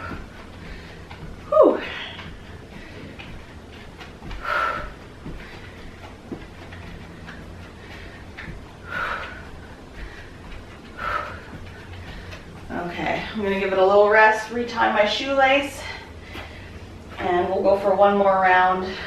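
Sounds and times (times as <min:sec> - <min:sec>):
woman breathing hard: 0:00.0 - 0:12.7, 0:15.8 - 0:17.2.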